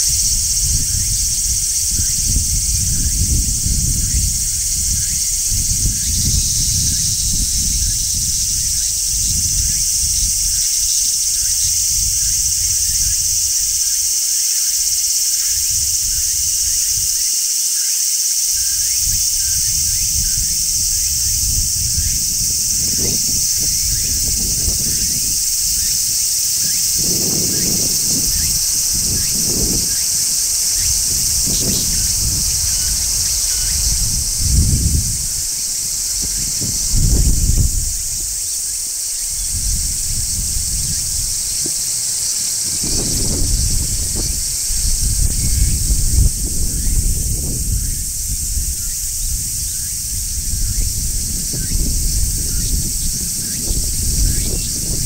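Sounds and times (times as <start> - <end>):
cicadas buzzing: 0.0 - 55.0.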